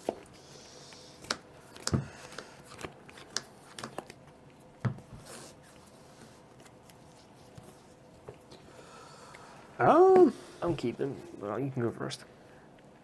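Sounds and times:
playing cards snapping and tapping: 1.2s - 4.2s.

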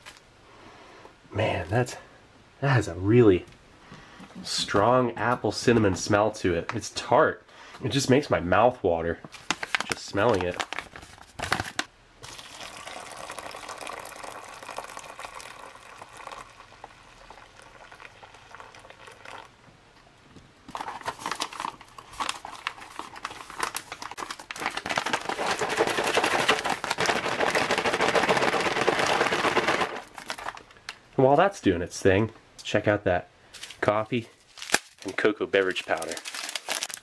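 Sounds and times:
plastic pouch crinkling: 9.3s - 12.8s, 20.7s - 31.0s, 34.4s - 37.0s
water pouring into pouch: 12.2s - 19.5s, 22.5s - 30.6s.

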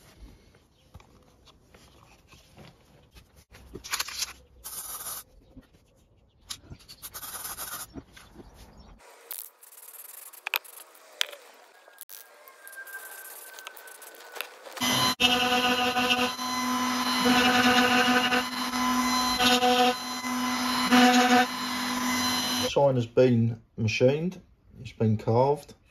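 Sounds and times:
spray paint can hissing: 4.6s - 5.2s, 7.1s - 7.9s.

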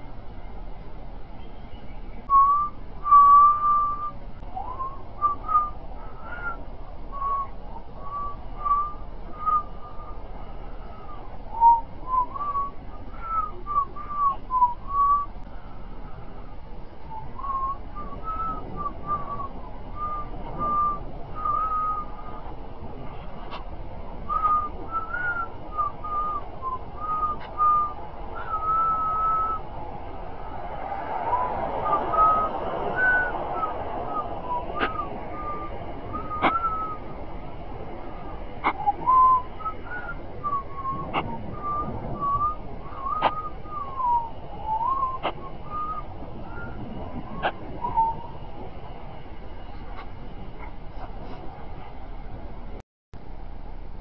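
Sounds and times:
person whistling a tune: 2.3s - 10.2s, 10.9s - 15.3s, 17.1s - 22.4s, 24.3s - 29.6s, 31.3s - 37.1s, 38.6s - 48.4s.

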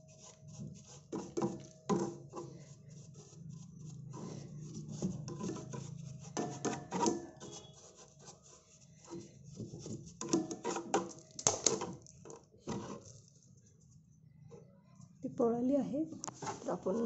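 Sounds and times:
brush scrubbing metal: 0.0s - 11.2s.

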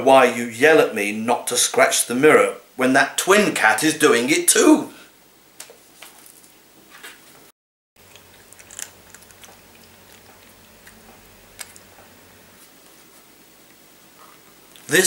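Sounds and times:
cat crunching food: 8.0s - 12.7s.

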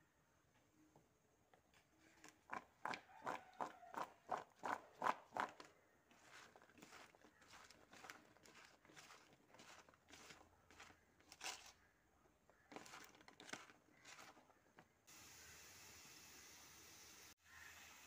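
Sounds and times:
crunching and rustling in plastic bowl: 3.9s - 11.9s, 12.5s - 15.0s.

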